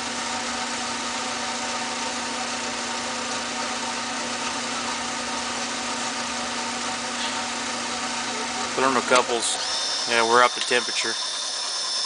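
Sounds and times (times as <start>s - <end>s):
blower fan humming: 0.0s - 12.0s.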